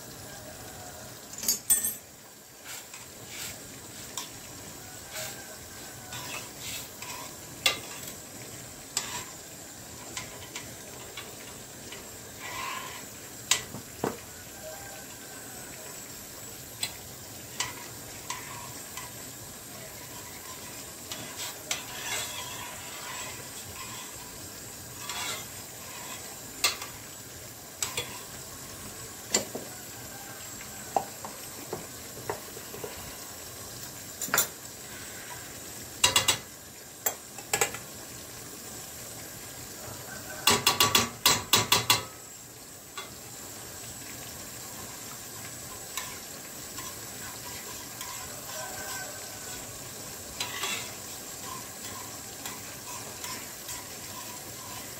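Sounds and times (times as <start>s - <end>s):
food hissing on the stove: 0.0s - 54.9s
metal spoon stirring in a pan: 1.4s - 14.2s, 16.8s - 29.6s, 34.2s - 37.8s, 40.3s - 42.2s, 44.0s - 54.9s
spoon tapping on a pan: 13.5s - 14.2s, 29.3s - 29.7s, 30.9s - 32.5s, 34.2s - 34.6s, 36.0s - 37.8s, 40.4s - 42.2s.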